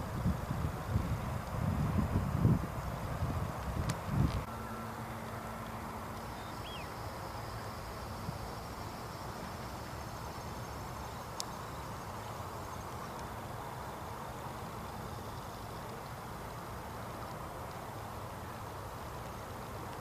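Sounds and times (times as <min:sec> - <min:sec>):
faint steady hum: 0:00.0 - 0:20.0
outdoor background noise: 0:00.0 - 0:20.0
bird chirp: 0:06.2 - 0:07.1.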